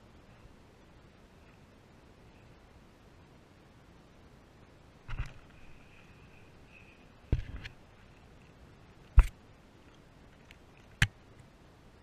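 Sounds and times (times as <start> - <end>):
handling noise: 5.1 - 6.2.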